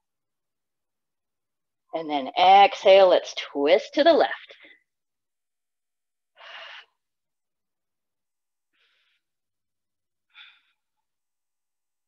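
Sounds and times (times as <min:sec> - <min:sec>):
person breathing: 0:06.4 - 0:07.0, 0:08.7 - 0:09.4, 0:10.3 - 0:11.0.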